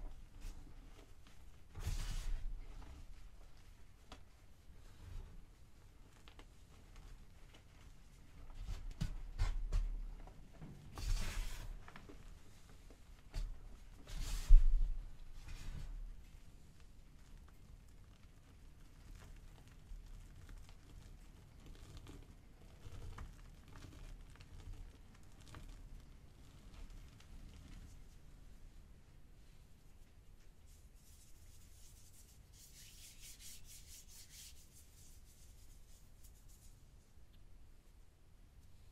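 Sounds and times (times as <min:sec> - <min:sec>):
fingers scratching chalk powder: 0:31.0 - 0:36.8.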